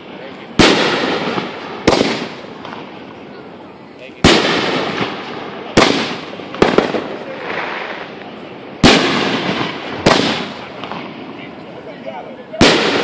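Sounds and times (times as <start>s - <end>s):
firework shells bursting: 0.0s - 3.2s, 4.2s - 11.2s.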